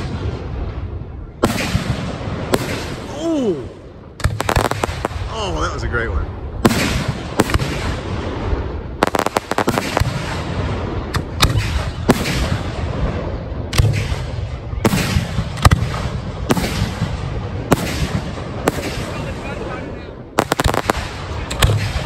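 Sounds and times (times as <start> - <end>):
fireworks bursting: 0.0 - 22.0.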